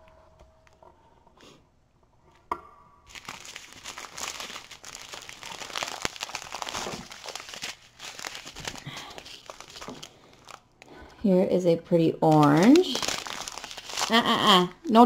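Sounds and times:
plastic bags crinkling: 3.1s - 10.8s, 12.2s - 14.7s.

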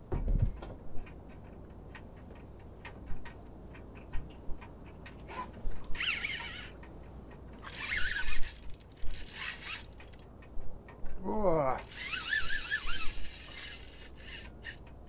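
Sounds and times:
fishing reel drag buzzing: 6.0s - 6.7s, 7.6s - 10.2s, 11.8s - 14.8s.

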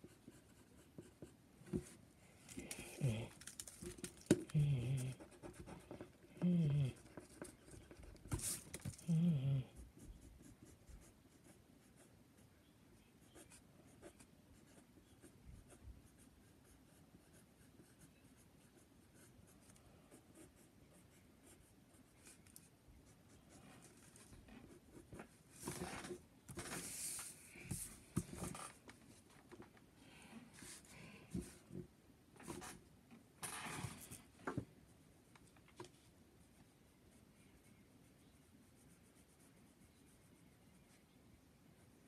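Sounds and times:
pencil scratching on paper: 0.0s - 3.2s, 13.2s - 22.4s, 37.2s - 40.3s.

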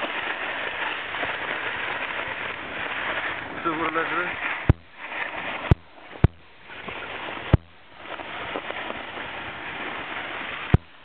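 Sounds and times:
snowboard scraping over snow: 0.0s - 11.0s
sharp knocks: 4.7s - 5.0s, 5.7s - 6.5s, 7.5s - 7.8s.

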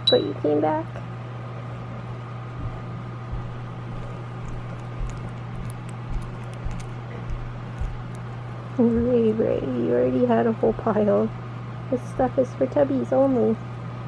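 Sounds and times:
steady low hum: 0.0s - 14.0s
guinea pig licking and chewing: 3.3s - 9.4s.

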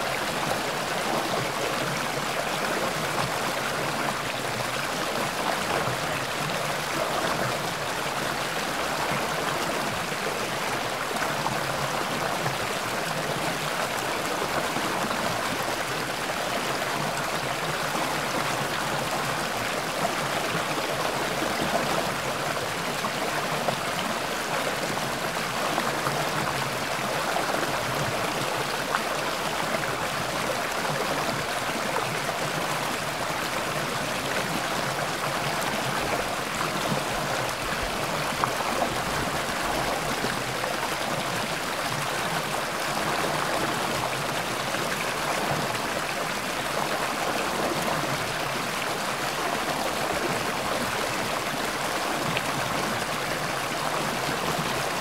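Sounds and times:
stream babbling: 0.0s - 55.0s.

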